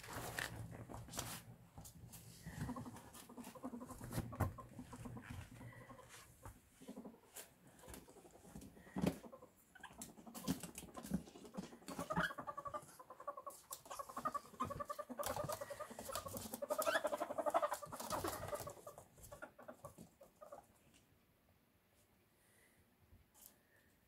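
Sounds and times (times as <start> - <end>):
ferrets scuffling on floor: 0.0 - 9.2, 10.2 - 20.0.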